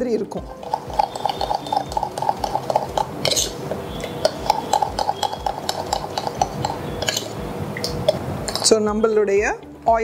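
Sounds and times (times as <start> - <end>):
metal spoon scraping brass bowl: 3.2 - 7.4.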